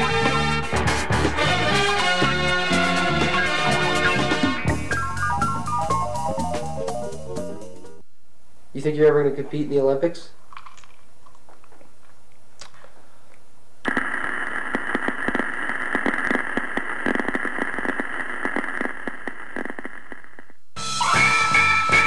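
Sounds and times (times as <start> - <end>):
music: 0.0 - 8.0, 20.8 - 22.0
dense crackling with tiny pops: 10.5 - 20.6.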